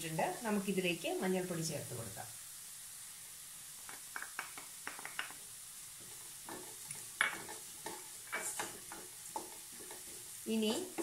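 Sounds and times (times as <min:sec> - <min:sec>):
faint frying sizzle: 0:00.0 - 0:11.0
wooden spatula scraping a pan: 0:06.0 - 0:11.0.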